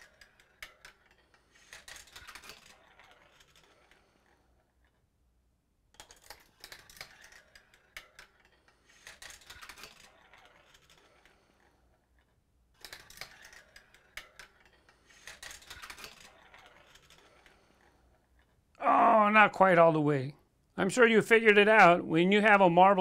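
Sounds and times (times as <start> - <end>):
marble rattling down plastic run: 0.0 - 4.4, 6.0 - 11.8, 12.8 - 17.7.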